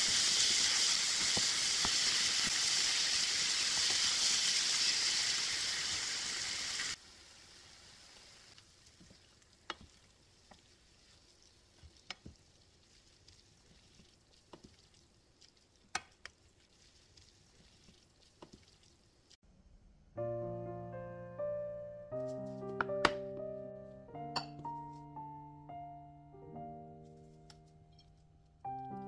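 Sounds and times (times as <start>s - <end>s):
meat sizzling in frying pan: 0.0s - 18.8s.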